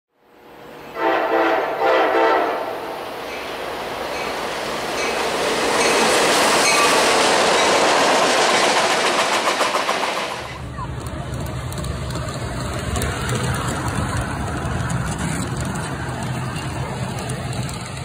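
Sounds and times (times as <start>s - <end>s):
freight train rumbling past: 0.2s - 18.0s
locomotive horn blasts: 0.9s - 3.0s.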